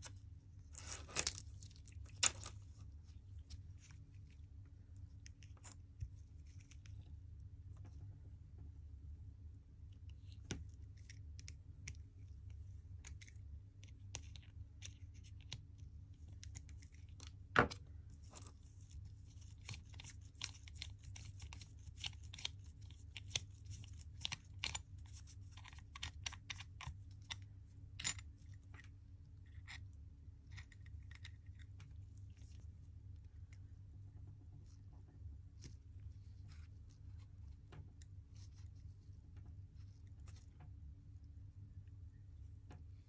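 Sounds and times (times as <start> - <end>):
low steady hum: 0.0 - 43.0.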